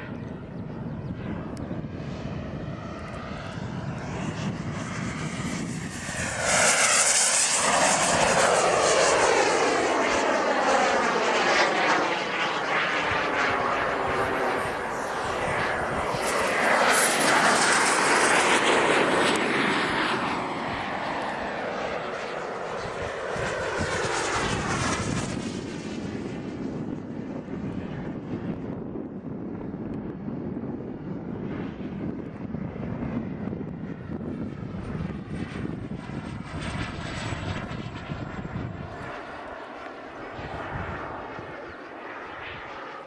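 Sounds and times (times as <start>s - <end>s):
model jet turbine passing overhead: 0.0s - 43.0s.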